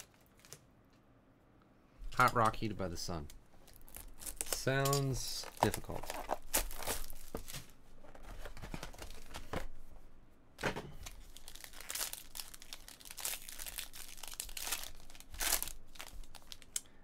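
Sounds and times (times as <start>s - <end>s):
foil wrapper tearing: 0.0s - 0.6s, 3.6s - 4.6s, 5.4s - 7.6s, 11.2s - 16.8s
plastic wrap crinkling: 0.0s - 0.7s, 3.2s - 9.7s, 11.0s - 16.9s.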